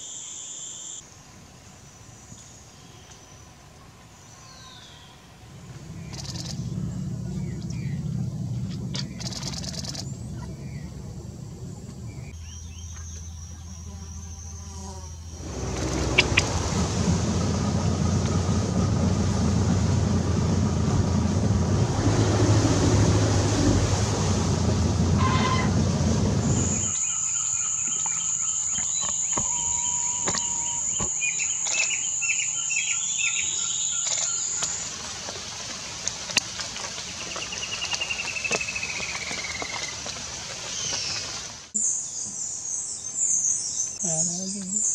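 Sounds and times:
high insect buzz: 0.0s - 1.0s, 13.0s - 16.5s, 26.6s - 34.5s
bird calls: 4.3s - 11.1s, 11.7s - 16.8s, 26.4s - 35.0s, 36.9s - 44.9s
rushing noise with low rumble: 5.2s - 13.2s, 15.2s - 27.1s.

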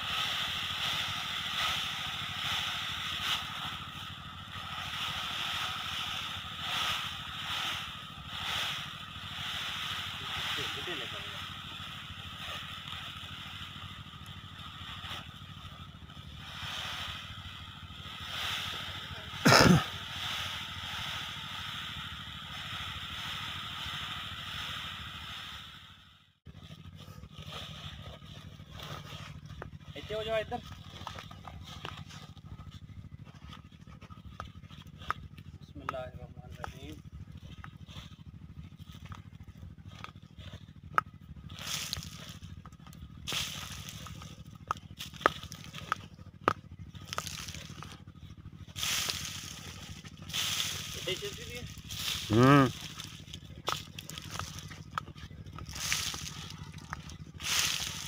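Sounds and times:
engine idling: 0.0s - 58.0s
granules scattering on dry soil: 40.9s - 58.0s
granules pouring into sack: 55.6s - 58.0s.

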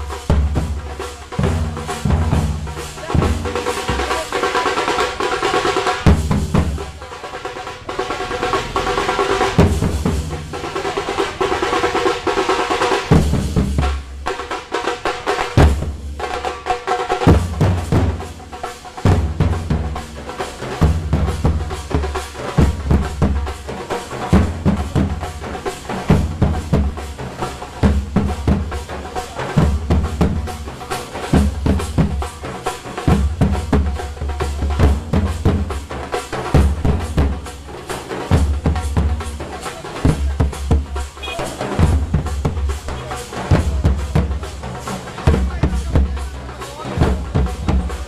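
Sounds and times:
metal drum beating fast rhythm: 0.0s - 48.0s.

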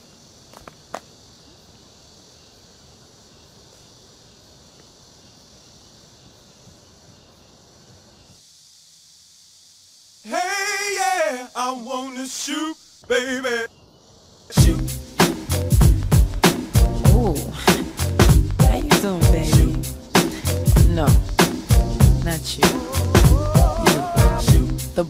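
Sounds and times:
faint steady hiss: 0.0s - 25.0s
person singing wordlessly with vibrato: 10.2s - 13.7s, 14.5s - 15.0s, 18.6s - 20.6s, 22.6s - 25.0s.

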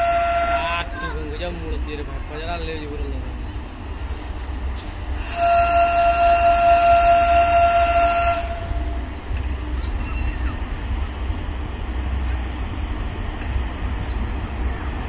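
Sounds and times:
locomotive horn: 0.0s - 1.0s, 5.2s - 9.1s
train rumbling: 0.0s - 15.0s.

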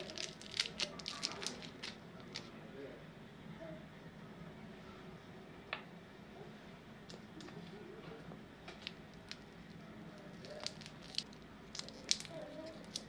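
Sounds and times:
foil wrapper crinkling: 0.0s - 2.5s, 10.2s - 13.0s.

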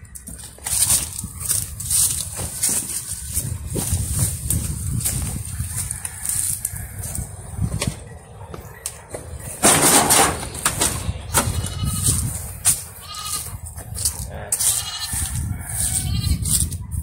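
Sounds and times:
livestock bleating: 11.3s - 12.3s, 12.9s - 13.6s, 14.5s - 16.6s.

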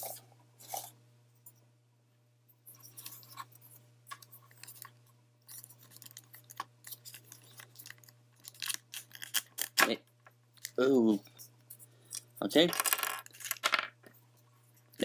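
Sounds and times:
steady low hum: 0.0s - 15.0s
plastic parts clicking and rattling: 12.1s - 14.1s.

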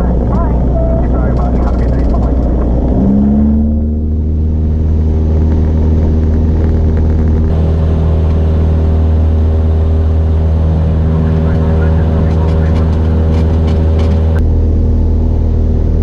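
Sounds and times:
light aircraft engine and propeller: 0.0s - 16.0s.

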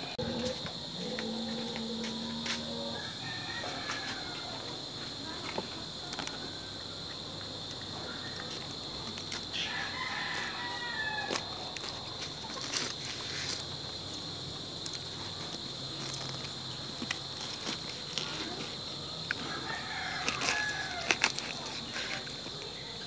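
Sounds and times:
rooster crowing: 1.4s - 4.7s, 9.5s - 11.5s, 19.4s - 21.2s.

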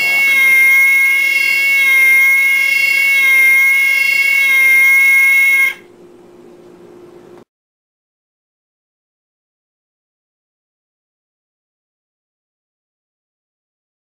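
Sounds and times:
faint low hum: 0.0s - 7.5s
loud steady buzzing tone: 0.0s - 7.5s.

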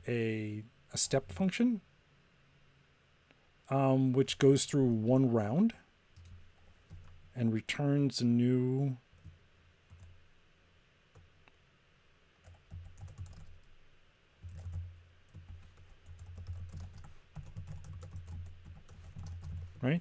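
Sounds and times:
typing on computer keyboard: 6.2s - 7.2s, 12.4s - 13.8s, 14.4s - 19.7s.

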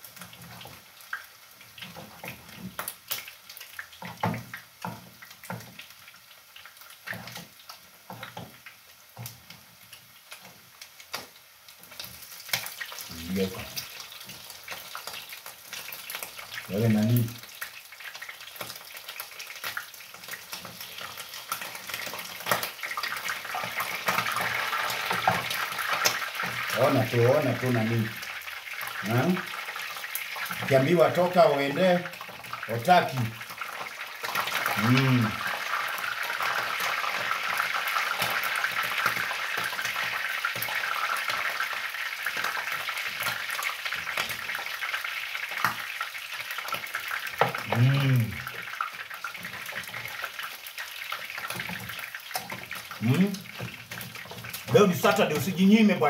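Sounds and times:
meat sizzling in a frying pan: 0.0s - 56.0s.

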